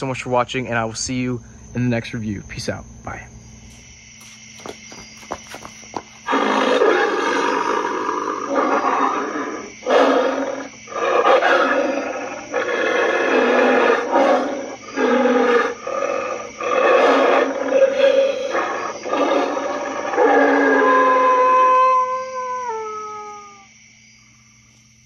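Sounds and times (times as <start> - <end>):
prop snarling growls: 6.3 - 21.4.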